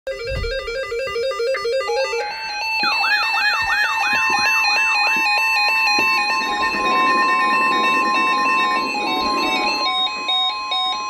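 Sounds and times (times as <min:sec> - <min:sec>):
electronic alarm beeps: 0:00.1 - 0:11.0
steady alarm tones: 0:00.1 - 0:11.0
chirping electronic sweep: 0:02.0 - 0:10.8.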